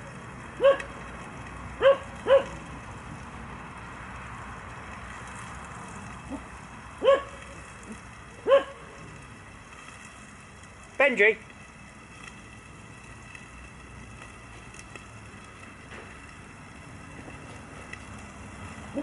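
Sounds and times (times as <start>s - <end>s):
gas stove hissing: 0.0s - 19.0s
dog barking: 0.6s - 0.9s, 1.8s - 2.6s, 7.0s - 7.4s, 8.4s - 8.8s.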